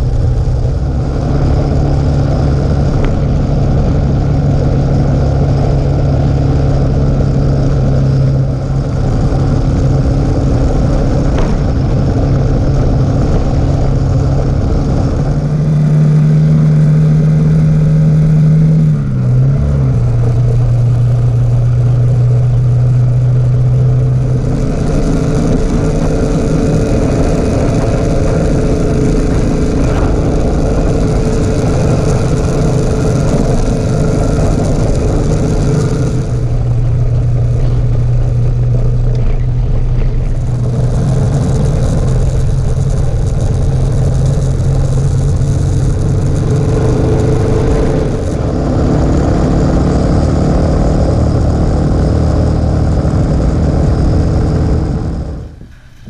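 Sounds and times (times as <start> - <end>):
motorcycle engine running: 0.0 - 56.0
tyre noise on dirt road: 0.0 - 56.0
wind noise: 0.0 - 56.0.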